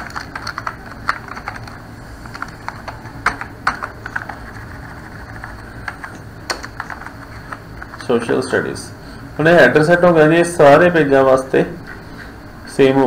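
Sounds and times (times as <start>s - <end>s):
typing on computer keyboard: 0.0s - 8.0s.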